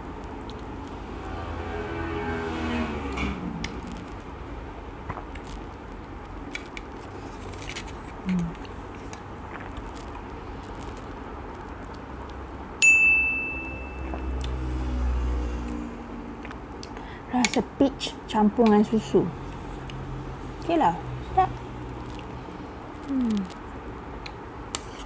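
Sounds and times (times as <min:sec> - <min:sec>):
low hum: 0:00.0 - 0:06.5, 0:08.2 - 0:17.2
quiet eating with wooden spoon: 0:06.4 - 0:12.4
bright ding sound effect: 0:12.8 - 0:14.3.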